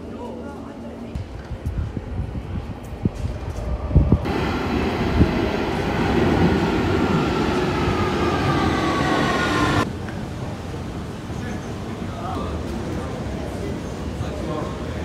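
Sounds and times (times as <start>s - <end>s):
train wheels rumbling on rail: 1.2s - 14.7s
train whining tones gliding down: 4.3s - 9.9s.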